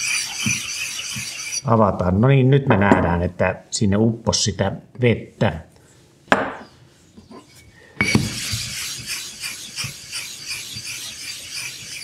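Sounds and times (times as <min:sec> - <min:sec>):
scrubbing on wet whetstone: 0:08.3 - 0:12.0.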